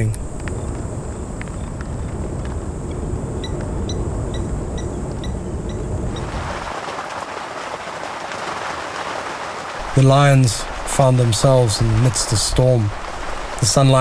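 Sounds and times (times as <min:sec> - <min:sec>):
low wind rumble: 0:00.0 - 0:14.0
heavy rain hissing: 0:05.9 - 0:14.0.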